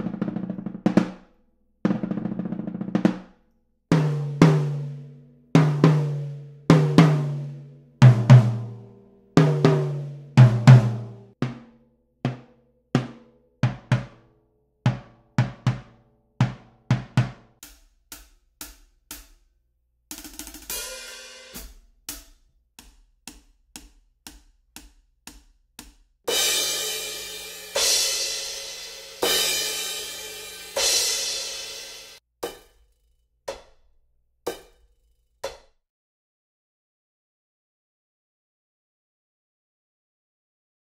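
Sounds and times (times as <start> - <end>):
tom drum hits: 9.4 - 11.7, 14.9 - 17.6
muted cymbal hits: 26.3 - 32.7.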